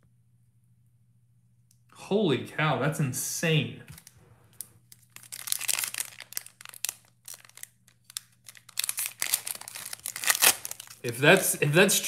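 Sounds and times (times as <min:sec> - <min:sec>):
foil wrapper crinkling and tearing: 0:03.9 - 0:11.7.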